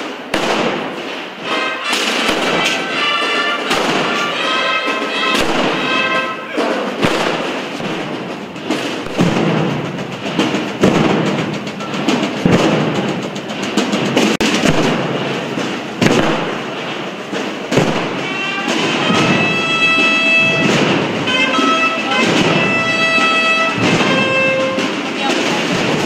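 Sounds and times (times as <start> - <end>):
massed drums rolling: 0.0 - 26.0
brass playing held notes: 1.4 - 7.4, 18.0 - 26.0.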